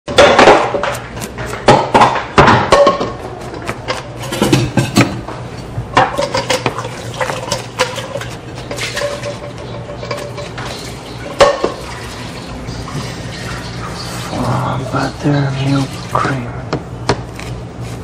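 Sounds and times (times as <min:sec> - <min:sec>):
dishes and pans clattering: 0:00.1 - 0:15.2
water running: 0:06.1 - 0:16.5.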